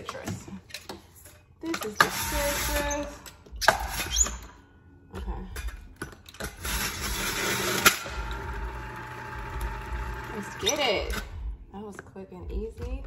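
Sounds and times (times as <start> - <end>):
electric juicer grinding produce: 6.6 - 11.0.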